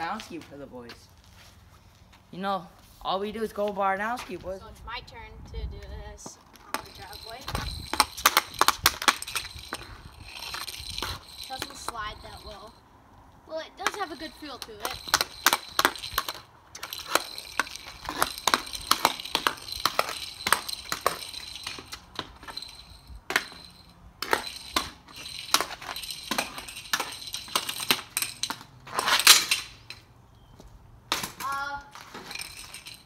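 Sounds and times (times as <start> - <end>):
puck scraping on concrete: 5.5 - 12.8, 13.5 - 33.0
hockey stick clacking puck: 6.5 - 12.6, 13.8 - 22.6, 23.3 - 30.0.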